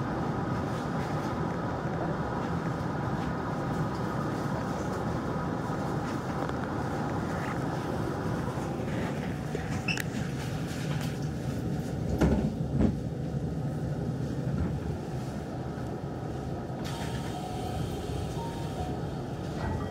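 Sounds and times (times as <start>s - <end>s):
train rumble from inside: 0.0s - 19.9s
train clunks: 12.0s - 13.0s, 16.8s - 19.9s
sliding doors hissing open: 16.8s - 19.1s.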